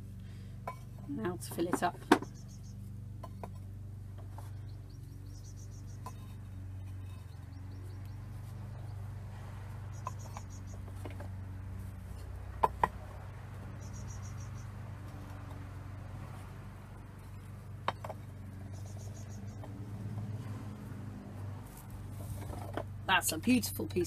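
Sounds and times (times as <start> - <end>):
steady low hum: 0.0 - 24.0
clay scraping and tapping: 0.6 - 2.4, 3.2 - 4.7, 5.8 - 8.9, 10.0 - 13.8, 15.0 - 20.4, 21.7 - 22.9
rapid high chirps: 13.8 - 14.7.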